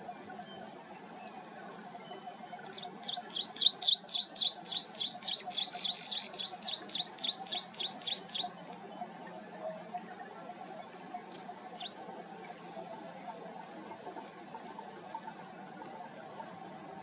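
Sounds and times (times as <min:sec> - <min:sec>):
birds chirping: 0:02.0 - 0:08.6, 0:11.6 - 0:12.1.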